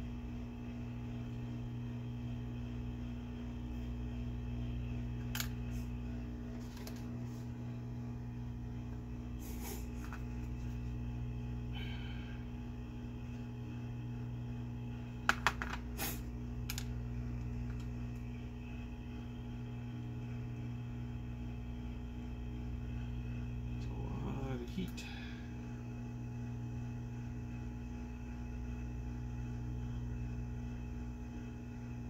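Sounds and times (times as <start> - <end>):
low electrical hum: 0.0 - 32.0
hot air gun blowing: 9.4 - 10.0, 16.0 - 16.3.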